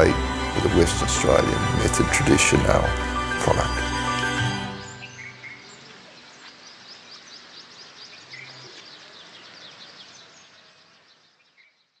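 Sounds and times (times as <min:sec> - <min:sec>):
steady outdoor hiss: 0:00.0 - 0:12.0
small birds chirping: 0:04.7 - 0:12.0.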